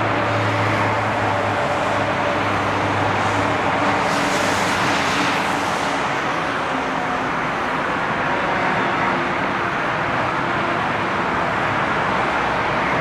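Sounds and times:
jet engines rushing: 0:00.0 - 0:10.5.

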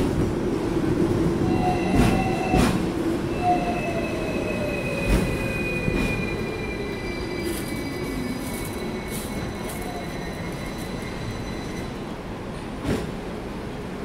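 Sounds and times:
tram wheels rumbling: 0:00.0 - 0:14.0
wheels squealing on rails: 0:01.4 - 0:12.1.

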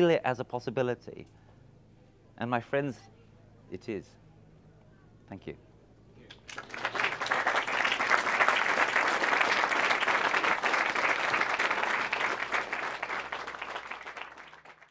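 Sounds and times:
audience applauding: 0:06.3 - 0:14.9.

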